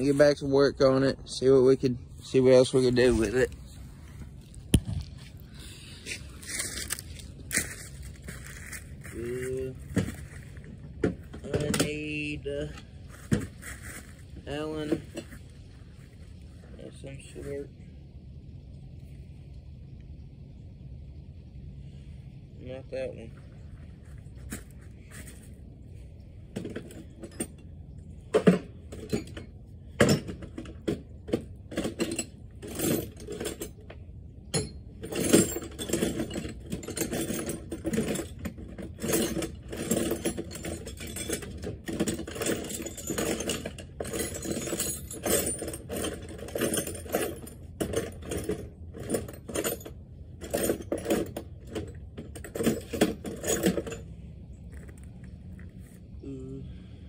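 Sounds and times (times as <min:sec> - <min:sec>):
metal hand tools clinking: 0:34.6 - 0:54.0.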